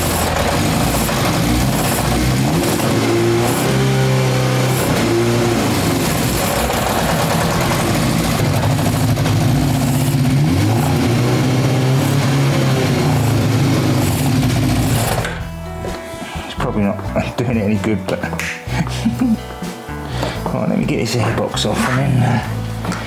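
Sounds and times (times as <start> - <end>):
motorcycle engine revving: 0.0 - 15.5.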